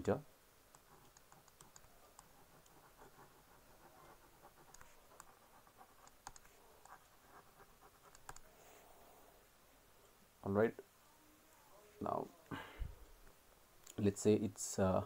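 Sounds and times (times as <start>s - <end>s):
stylus scratching on tablet screen: 0.8s - 8.8s.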